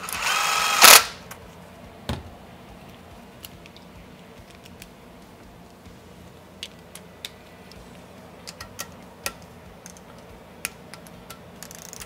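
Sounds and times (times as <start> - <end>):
torque wrench ratchet clicks: 10.9 - 12.0.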